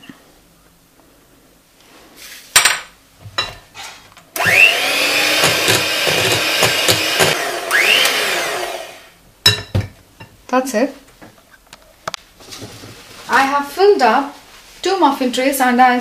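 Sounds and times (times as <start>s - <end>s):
electric hand mixer whining: 4.4s - 9.2s.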